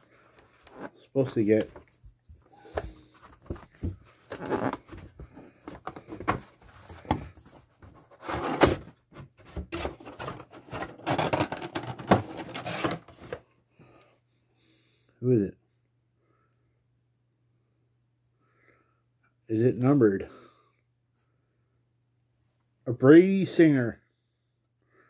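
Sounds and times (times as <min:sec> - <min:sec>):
packaging rustling and tearing: 0:09.7 - 0:13.4.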